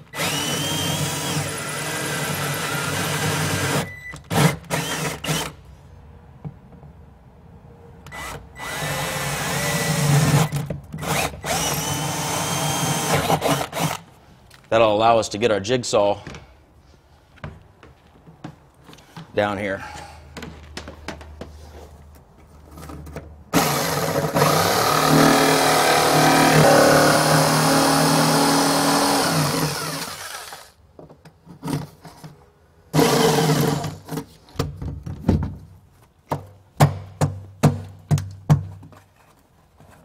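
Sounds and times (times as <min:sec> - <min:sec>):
jigsaw cutting: 0:00.1 - 0:05.6, 0:08.2 - 0:14.0, 0:23.5 - 0:30.8, 0:33.0 - 0:33.9.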